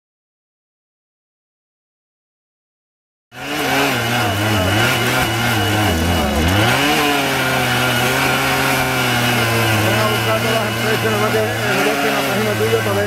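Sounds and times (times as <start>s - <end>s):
disc cutter cutting steel rail: 3.4s - 13.0s.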